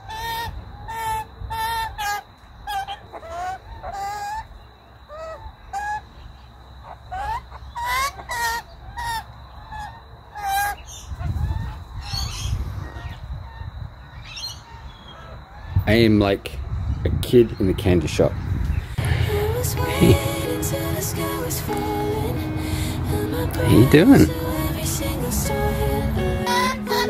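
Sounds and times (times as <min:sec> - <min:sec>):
magpies calling: 0:00.0 - 0:15.8.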